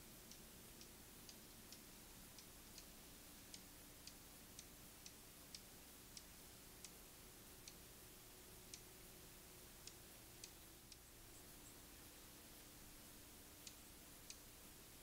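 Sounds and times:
faint sharp ticks: 0:00.2 - 0:15.0.

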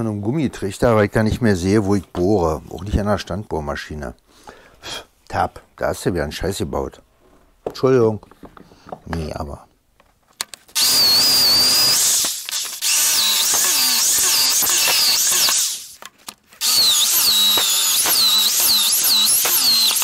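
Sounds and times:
electric drill boring into wood: 0:10.7 - 0:16.0, 0:16.6 - 0:20.0.

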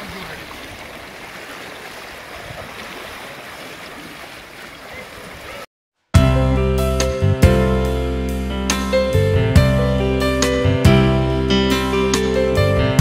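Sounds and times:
seawater splashing around legs: 0:00.0 - 0:05.7
small waves washing: 0:00.0 - 0:05.7.

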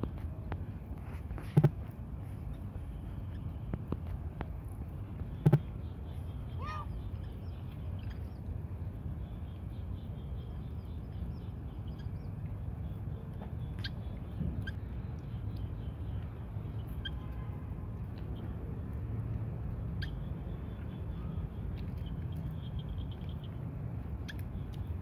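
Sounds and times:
cats feeding: 0:00.0 - 0:25.0
low background hum: 0:00.0 - 0:25.0
kittens squeaking: 0:06.4 - 0:08.3.

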